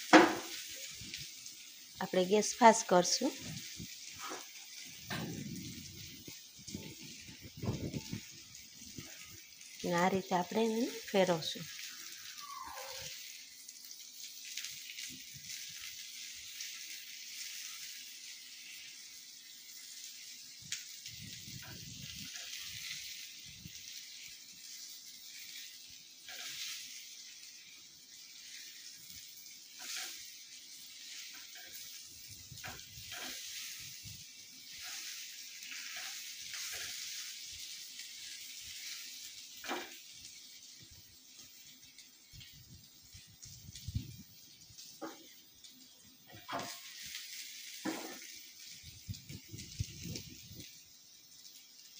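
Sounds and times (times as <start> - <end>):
oil sizzling in a frying pan: 0.0 - 51.9
spatula scraping and tapping: 46.4 - 46.8.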